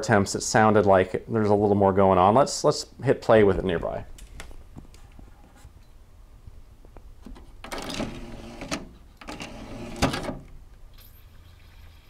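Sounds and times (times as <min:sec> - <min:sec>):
disc tray whirring: 0:07.6 - 0:10.4.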